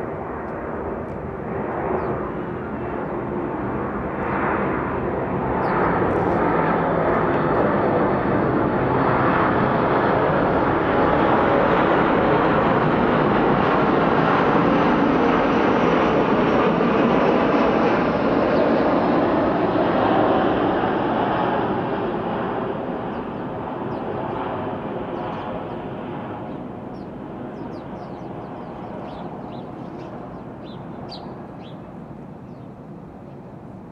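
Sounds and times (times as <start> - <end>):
faint bird chirps: 26.9 - 32.7.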